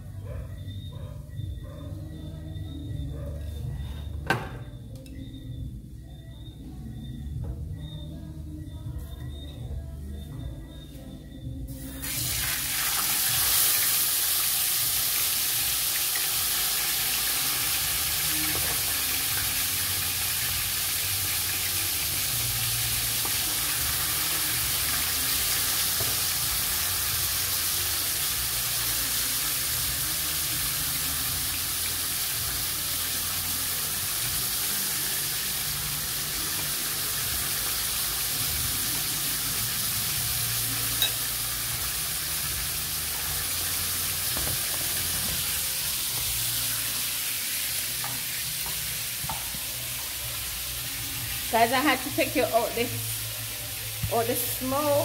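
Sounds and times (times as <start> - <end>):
fillets sizzling in hot oil: 12.0 - 55.0.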